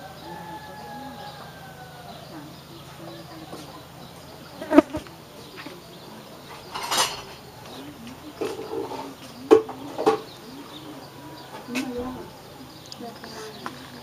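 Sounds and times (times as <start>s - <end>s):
insect buzzing: 0.2s - 6.2s.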